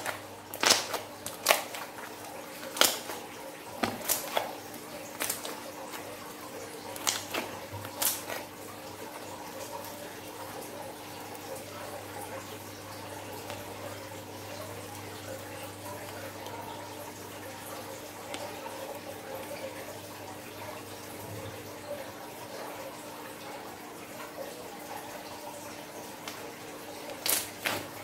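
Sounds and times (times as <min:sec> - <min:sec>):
loud slime squelch: 0:00.0 - 0:08.6, 0:26.2 - 0:28.0
slime crackling wetly: 0:00.0 - 0:09.1, 0:26.1 - 0:28.0.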